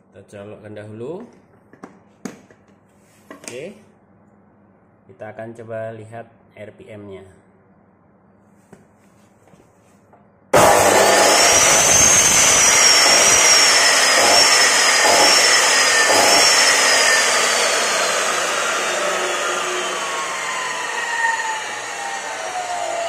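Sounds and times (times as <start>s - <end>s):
cut-off saw motor whining: 10.6s - 23.0s.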